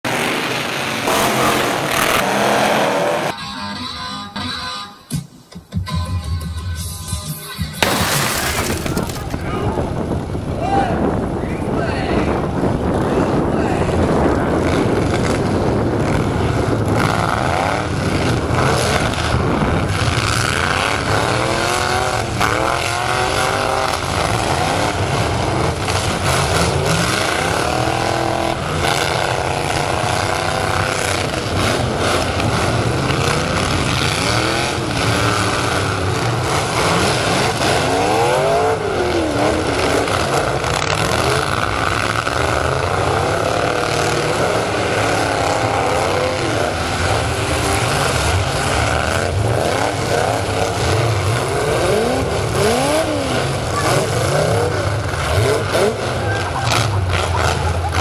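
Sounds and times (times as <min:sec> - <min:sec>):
truck engines revving: 0:00.0 - 0:58.0
trucks hitting one another: 0:07.8 - 0:10.1.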